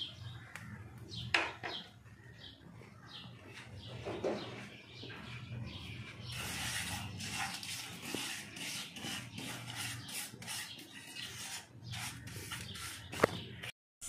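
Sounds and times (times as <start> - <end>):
wooden spatula scraping frying pan: 6.2 - 13.3.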